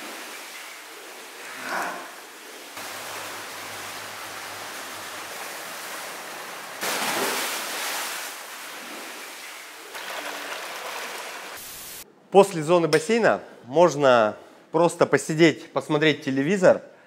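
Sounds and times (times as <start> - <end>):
water rushing and bubbling: 2.2 - 11.6
splashing: 2.4 - 12.0.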